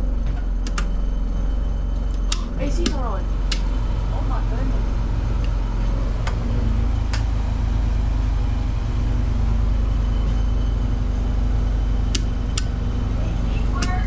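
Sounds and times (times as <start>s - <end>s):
generator engine droning: 0.0s - 14.0s
sharp clicks: 2.1s - 3.7s, 12.1s - 12.8s.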